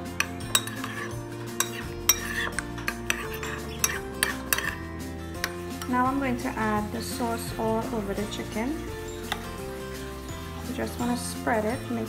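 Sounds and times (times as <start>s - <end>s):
spoon scraping bowl: 0.0s - 7.0s, 8.2s - 11.3s
background music: 0.0s - 12.0s
spoon clinking against bowl: 0.1s - 4.8s, 9.1s - 9.6s.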